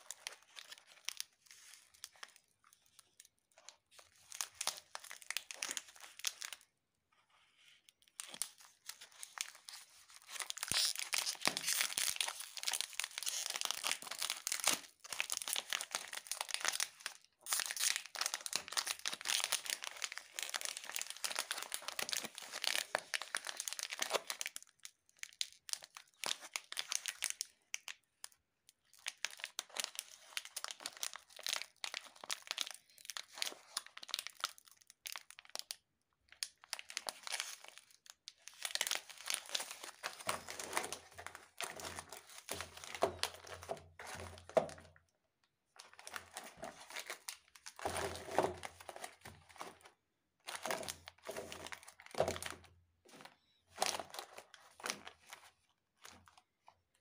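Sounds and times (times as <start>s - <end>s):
plastic wrapper crackling: 0.0s - 6.7s, 7.4s - 56.8s
wrapper tearing: 4.0s - 6.7s, 8.1s - 27.9s, 36.4s - 44.8s, 45.9s - 49.9s.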